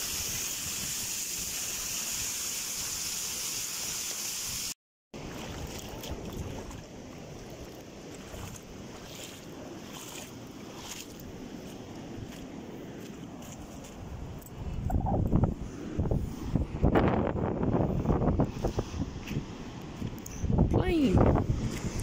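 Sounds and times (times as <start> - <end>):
wind: 0.0 - 22.0
sea: 5.1 - 22.0.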